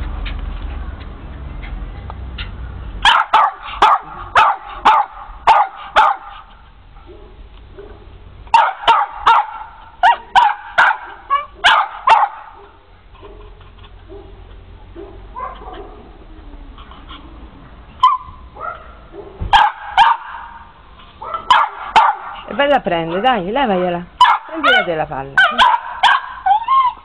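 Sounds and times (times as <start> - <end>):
dog barking: 3.0 - 6.4, 7.0 - 16.1, 18.0 - 20.6, 21.2 - 22.5, 24.2 - 27.0.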